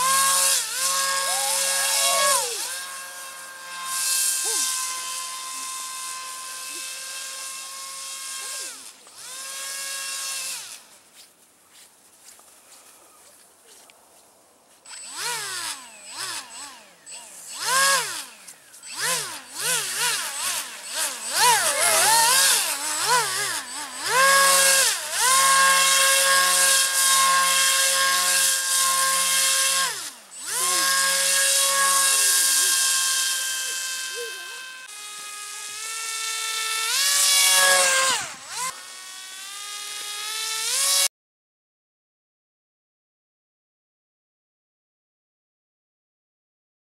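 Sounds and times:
electric motor and propeller whining: 0.0 - 11.1, 14.8 - 41.1.

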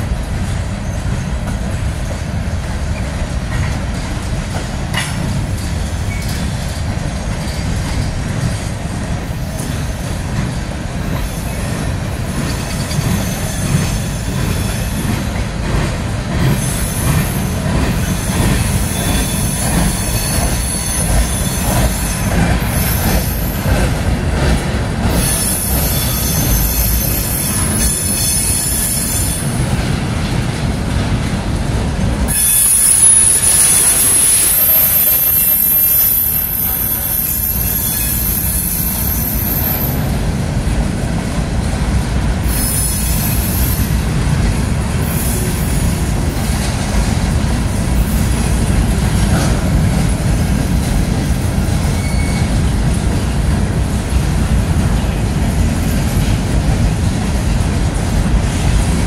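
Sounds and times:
steel wheels rumbling on rail: 0.0 - 59.0
high-pitched wheel squeal: 25.1 - 29.4, 32.3 - 40.0, 51.8 - 52.6.

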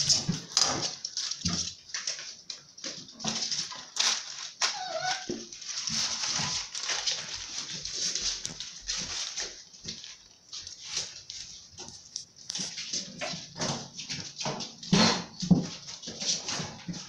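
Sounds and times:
puppies scuffling: 0.0 - 17.0
puppy whining yelp: 4.6 - 5.5.

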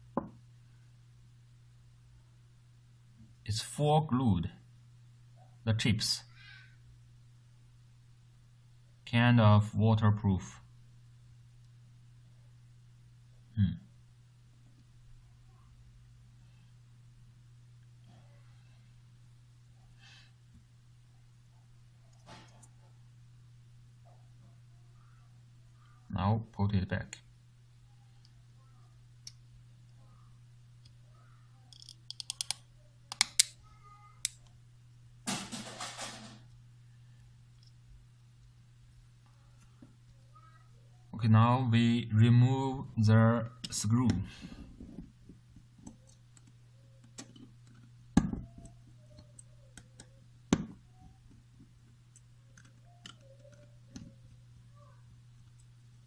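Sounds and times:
plastic parts clicking: 31.7 - 33.6.

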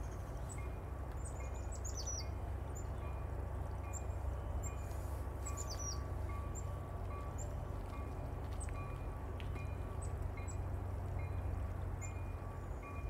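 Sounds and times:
small birds chirping: 0.0 - 3.1, 5.4 - 6.7.

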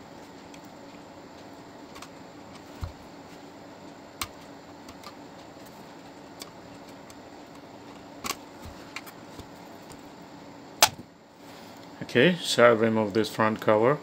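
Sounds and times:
faint hum: 0.0 - 14.0.

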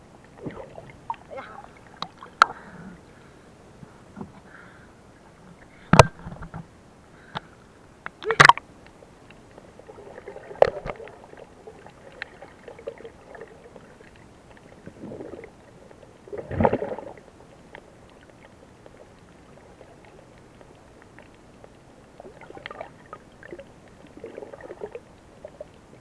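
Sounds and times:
water splashing: 0.2 - 2.7, 9.6 - 26.0
muffled underwater gurgles: 9.9 - 17.3.

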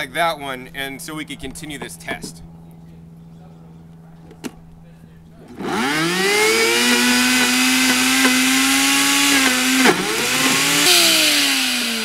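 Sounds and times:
falling motor whine: 5.4 - 12.0
blender knock: 5.5 - 12.0
blender motor running: 5.5 - 12.0.

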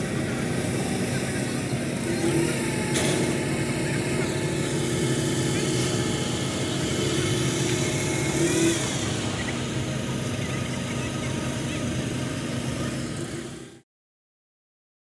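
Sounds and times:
petrol engine fan running: 0.0 - 13.8.

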